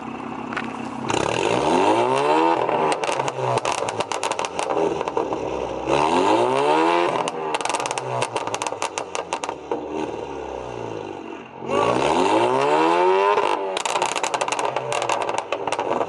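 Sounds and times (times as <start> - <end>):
car engine revving: 0.0 - 16.0
exhaust pops and crackles: 0.5 - 1.5, 2.2 - 5.9, 7.0 - 10.0, 13.3 - 16.0.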